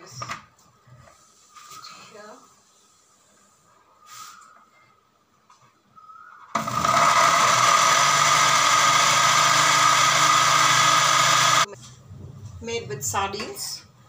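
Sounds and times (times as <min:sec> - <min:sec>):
electric blender motor running: 0:06.6 - 0:11.7.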